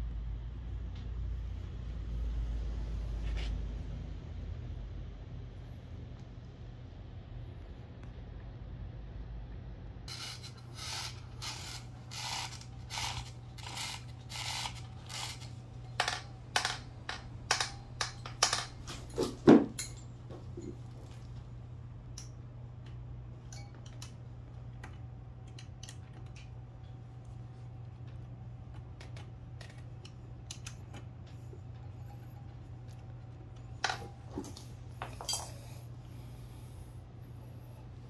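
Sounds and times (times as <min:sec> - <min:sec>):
steady low hum: 0:00.0 - 0:38.0
scraping strokes: 0:10.1 - 0:15.6.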